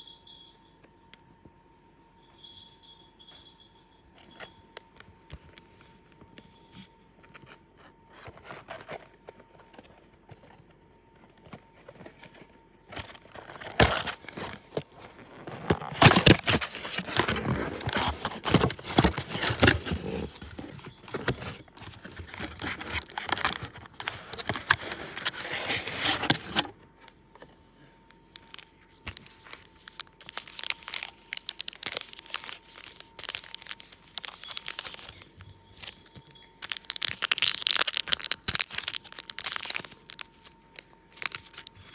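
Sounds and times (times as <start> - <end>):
plastic wrapper crinkling: 11.9 - 27.1, 28.0 - 41.9.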